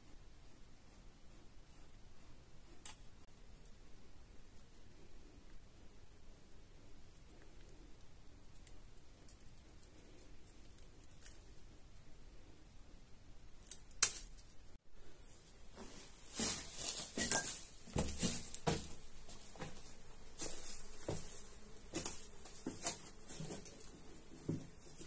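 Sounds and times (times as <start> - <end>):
clothing rustling: 15.7 - 23.7
footsteps of boots on rock: 17.1 - 23.6.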